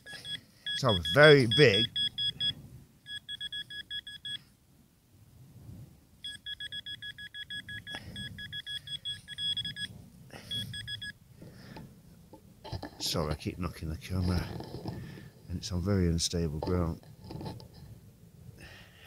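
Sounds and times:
metal detector beeping: 0.0 - 4.4, 6.2 - 9.9, 10.5 - 11.2
soft low rustling: 9.8 - 18.0.

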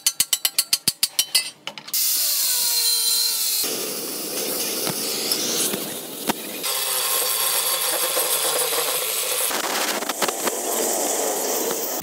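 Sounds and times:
cutting torch hissing: 3.6 - 12.0.

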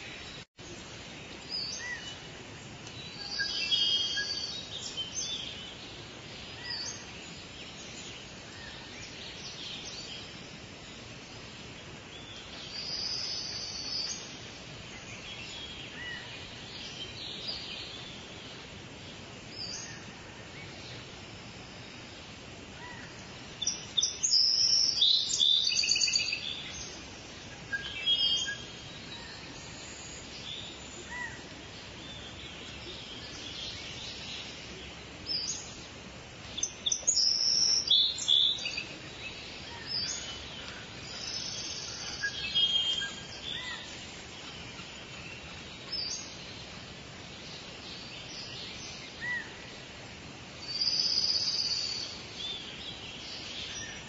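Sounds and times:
birds chirping: 0.0 - 54.0
steady hiss: 0.0 - 54.0.

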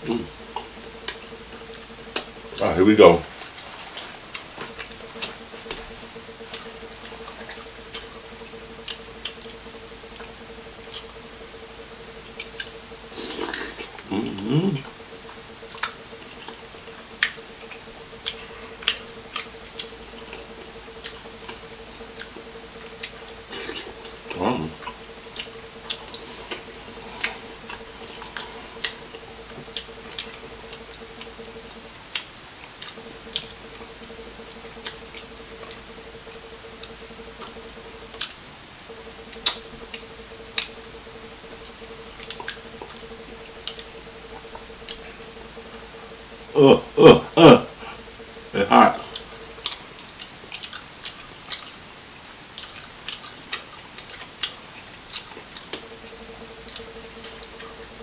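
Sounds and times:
low hum: 0.0 - 58.0
wet eating clicks and smacks: 12.2 - 45.4, 49.0 - 51.8, 52.5 - 57.9.

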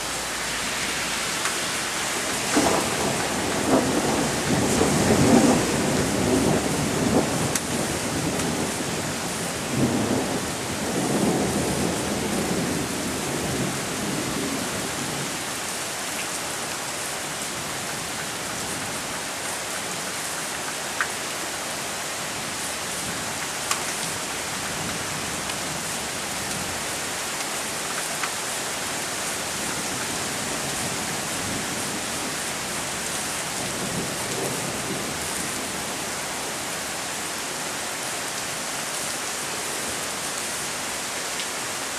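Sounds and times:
heavy rain falling: 0.0 - 41.9
rolling thunder: 2.2 - 7.6.

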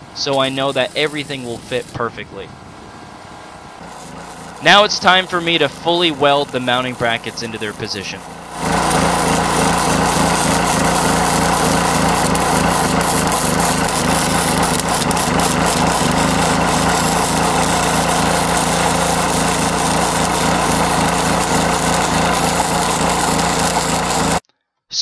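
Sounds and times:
small engine humming: 0.0 - 24.4
arc welding crackle: 0.1 - 24.4.

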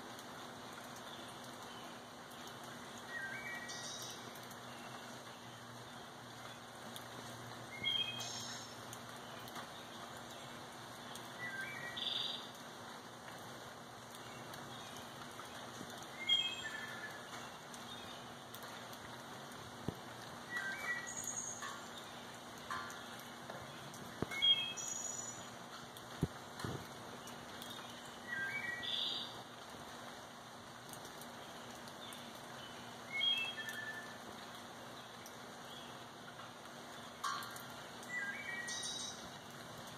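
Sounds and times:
steady rain falling: 0.0 - 39.9
bird whistling calls: 7.7 - 8.7, 16.2 - 17.2, 20.5 - 21.6, 24.3 - 25.4, 28.3 - 29.3, 33.1 - 34.1, 38.1 - 39.2.

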